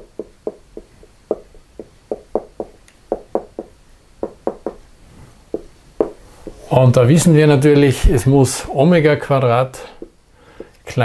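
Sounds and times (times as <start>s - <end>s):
marker tapping on whiteboard: 0.0s - 4.8s, 5.5s - 6.6s, 10.0s - 10.8s.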